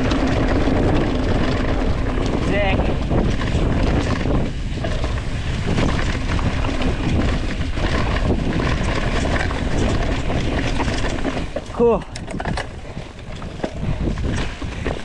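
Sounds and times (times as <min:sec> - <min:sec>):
bike clicks and rattles: 0:00.0 - 0:15.0
tyres rolling over leaves and rocks: 0:00.0 - 0:15.0
wind noise on microphone: 0:00.0 - 0:15.0.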